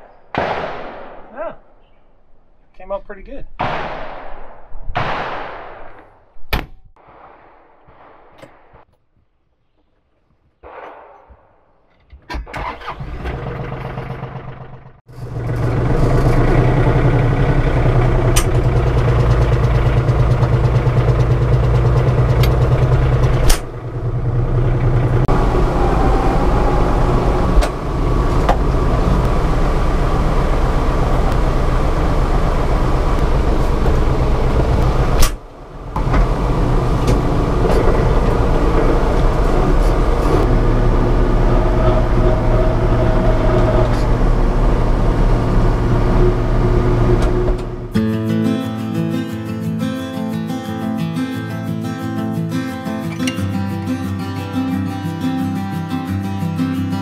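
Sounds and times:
diesel engine cranking and running: 12.4s - 48.0s.

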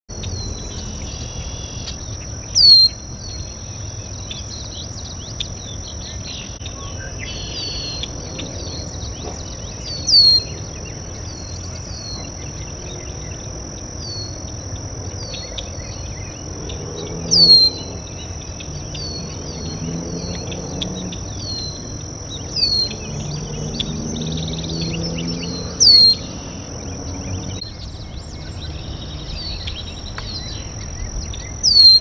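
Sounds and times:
insect trill: 0.1s - 32.0s.

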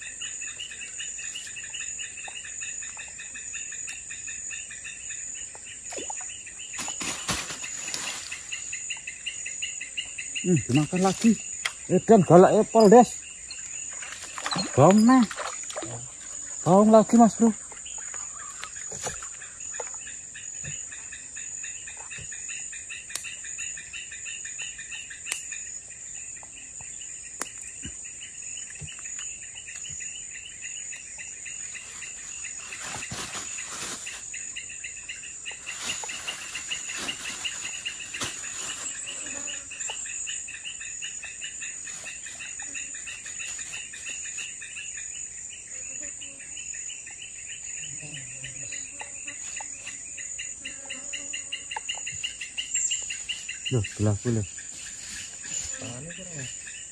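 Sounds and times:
insects buzzing and trilling: 0.0s - 56.9s
rustling noise: 6.8s - 8.7s, 31.8s - 34.4s, 35.6s - 39.2s, 54.6s - 55.8s.

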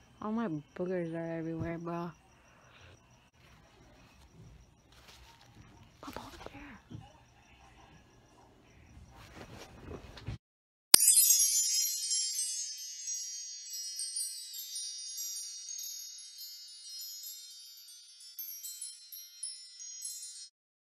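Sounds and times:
tinkling bell-like chime: 11.0s - 20.6s.

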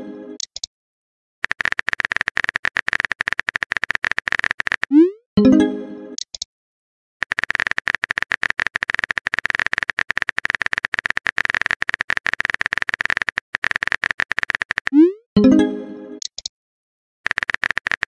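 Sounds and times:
typing clicks: 0.4s - 0.7s, 1.4s - 4.9s, 6.2s - 6.5s, 7.2s - 15.0s, 16.2s - 16.5s, 17.2s - 18.0s.

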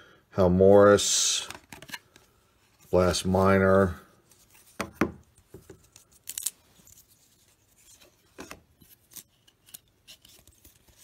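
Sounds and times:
trading cards scraping and snapping: 5.7s - 11.0s.

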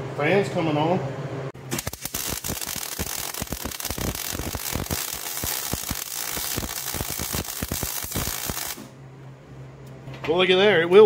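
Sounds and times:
welding arc crackling: 1.6s - 8.9s
welder low hum: 1.6s - 9.3s
welding hiss: 1.7s - 8.9s.

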